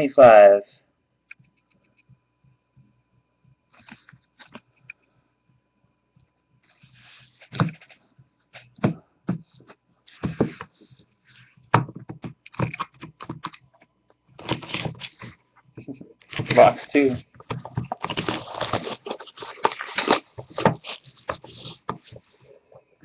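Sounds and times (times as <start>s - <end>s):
plastic clicks and knocks: 11.7s - 14.6s
packaging rustles: 14.4s - 23.0s.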